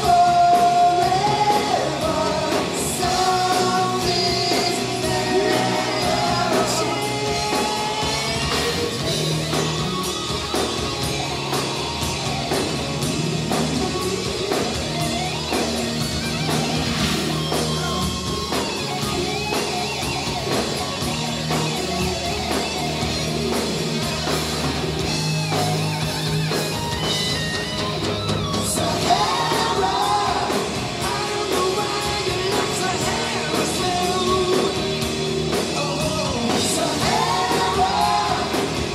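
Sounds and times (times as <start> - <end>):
man singing: 0.0 - 8.6, 28.7 - 38.9
live hard rock band: 0.0 - 38.9.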